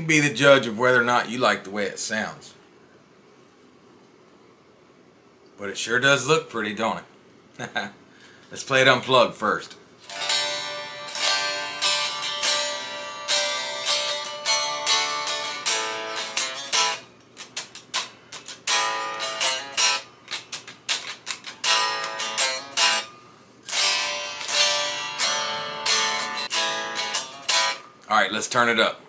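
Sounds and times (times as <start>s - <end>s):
unplugged electric guitar playing: 10.0s - 27.9s.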